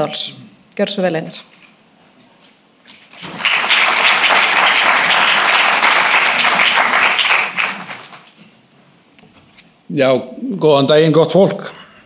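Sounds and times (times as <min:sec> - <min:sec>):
audience applauding: 0:03.0 - 0:08.3.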